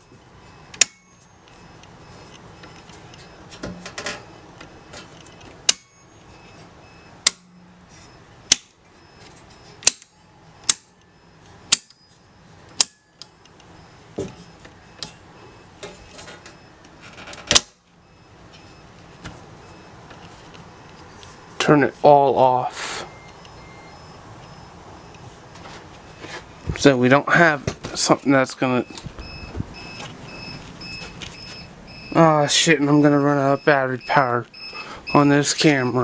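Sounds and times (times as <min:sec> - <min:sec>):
circuit breakers clicking: 0:00.7 - 0:06.3, 0:07.2 - 0:07.6, 0:08.4 - 0:08.8, 0:09.7 - 0:12.0, 0:12.7 - 0:13.8, 0:15.8 - 0:17.9.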